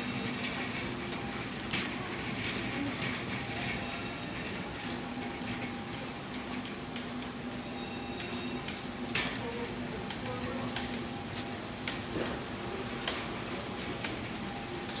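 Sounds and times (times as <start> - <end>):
shopping cart wheels rolling: 0.0 - 15.0.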